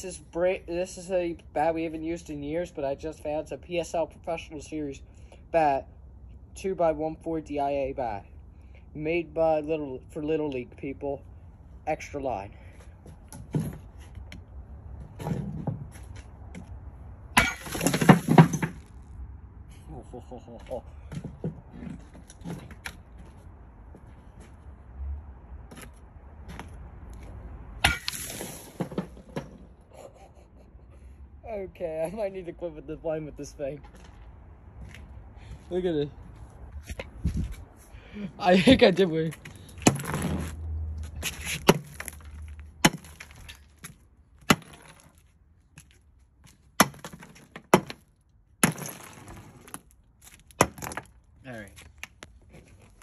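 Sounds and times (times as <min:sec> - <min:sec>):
bat smashing block of ice: 0:17.4 - 0:18.8, 0:27.8 - 0:29.2, 0:44.5 - 0:45.1, 0:48.6 - 0:49.7
ice shattering and scattering: 0:27.8 - 0:28.9, 0:48.6 - 0:49.7.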